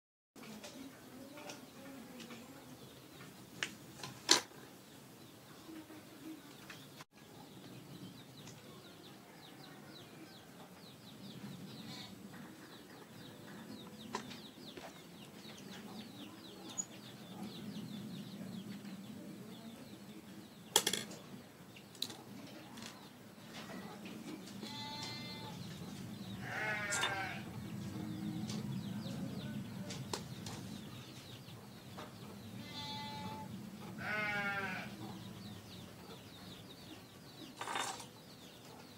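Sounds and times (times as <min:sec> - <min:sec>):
tools clattering on workbench: 0:20.8 - 0:21.2, 0:37.5 - 0:38.2
animal bleating: 0:24.6 - 0:25.6, 0:26.4 - 0:27.5, 0:32.6 - 0:35.0.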